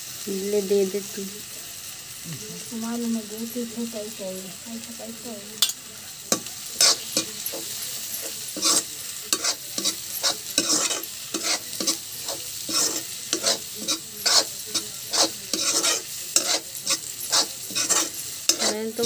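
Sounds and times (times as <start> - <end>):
potatoes sizzling in oil: 0.0 - 19.0
spatula scraping in a pan: 5.1 - 19.0.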